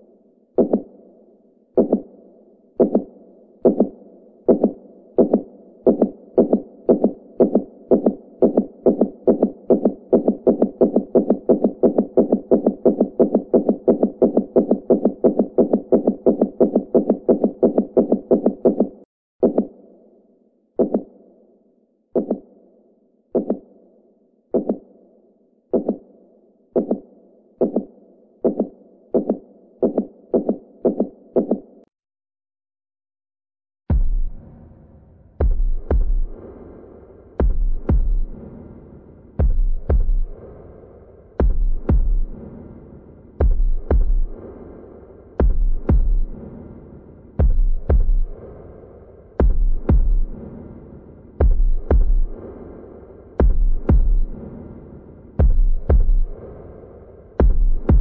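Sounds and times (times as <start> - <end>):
heartbeat thumping: 1.8 - 2.2, 2.8 - 19.6, 33.9 - 34.4, 35.4 - 36.4, 37.4 - 38.5, 39.4 - 40.6, 41.4 - 42.6, 43.4 - 44.6, 45.4 - 46.5, 47.4 - 48.6, 49.4 - 50.5, 51.4 - 52.5, 53.4 - 54.5, 55.4 - 56.5, 57.4 - 58.0.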